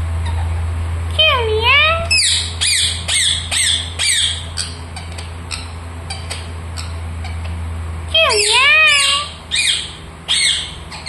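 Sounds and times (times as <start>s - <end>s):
steady low hum: 0.0s - 11.0s
parakeet squawking: 0.2s - 0.6s, 1.7s - 7.6s, 8.2s - 11.0s.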